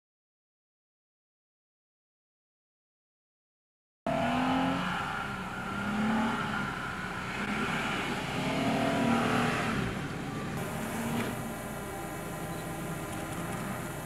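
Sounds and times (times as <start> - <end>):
truck engine revving: 4.1 - 14.0
tyres churning sand: 4.3 - 14.0.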